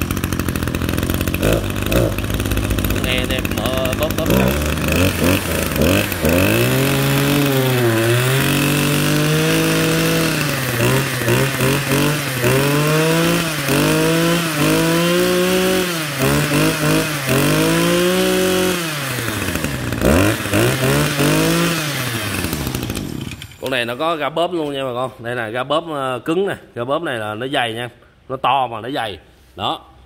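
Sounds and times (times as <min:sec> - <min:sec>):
brush cutter engine revving: 0:00.0 - 0:23.8.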